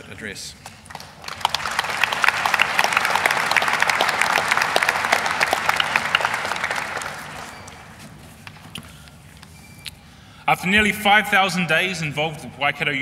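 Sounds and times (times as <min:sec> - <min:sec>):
audience applauding: 0:00.7 - 0:08.6.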